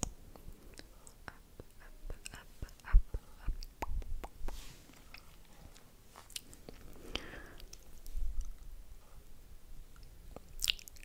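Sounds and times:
wet lip clicks and smacks: 0:00.0 - 0:05.4, 0:10.0 - 0:11.0.

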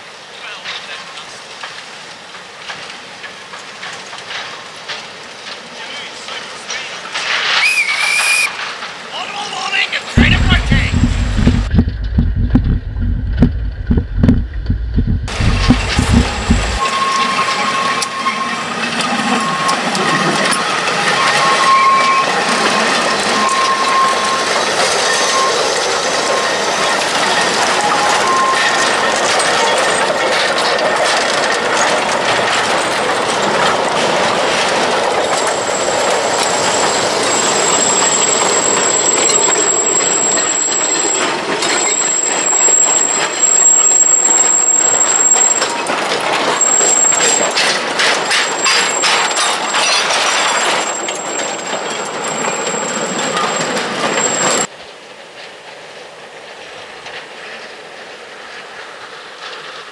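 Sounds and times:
iron wheels clattering over rail joints: 0:01.4 - 0:59.9
thin high wheel squeal: 0:07.2 - 0:08.6, 0:15.3 - 0:30.2, 0:34.5 - 0:54.7.

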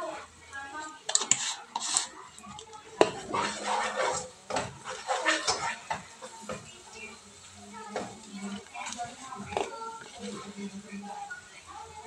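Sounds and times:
wooden spoon knocking metal pot: 0:03.0 - 0:07.1.

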